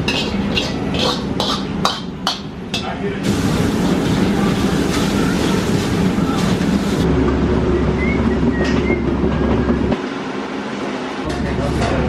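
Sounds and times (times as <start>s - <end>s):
kitchen clatter: 0.0s - 7.0s
kitchen roar: 0.0s - 12.0s
cart rolling rumble: 3.2s - 10.0s.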